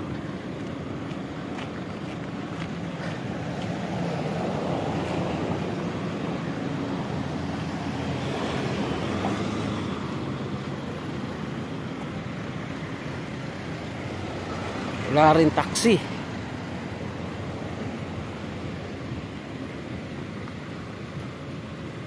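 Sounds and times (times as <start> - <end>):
traffic engines humming: 0.0 - 22.0.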